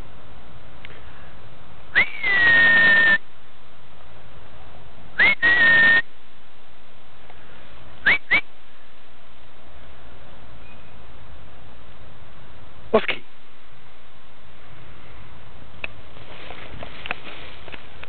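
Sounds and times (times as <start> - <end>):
steady background noise: 0.0 - 18.0
person whistling: 2.0 - 3.2, 5.2 - 6.0, 8.1 - 8.4.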